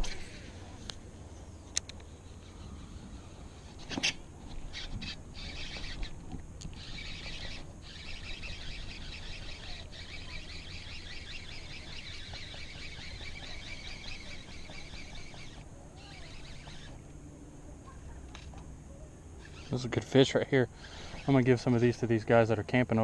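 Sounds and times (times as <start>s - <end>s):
fishing reel whirring: 1.8s - 17.0s, 19.4s - 22.0s.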